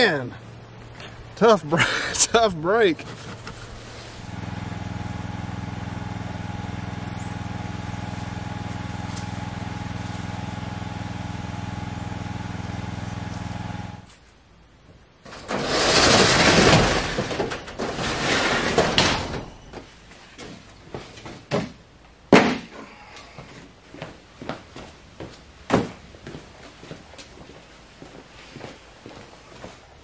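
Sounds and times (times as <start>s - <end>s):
engine-like hum: 0.0s - 14.2s
loud rough noise: 15.3s - 19.5s.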